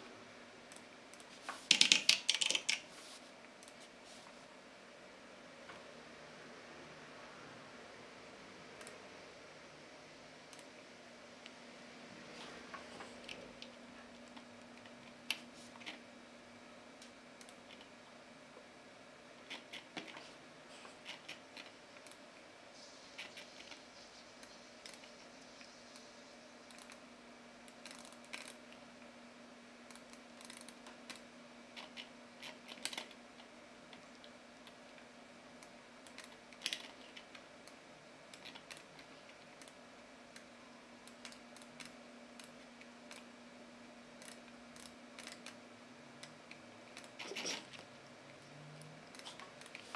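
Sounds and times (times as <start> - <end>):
faint steady hum: 0.0 - 49.9
mouse and keyboard clicks: 0.7 - 2.8, 19.4 - 20.2.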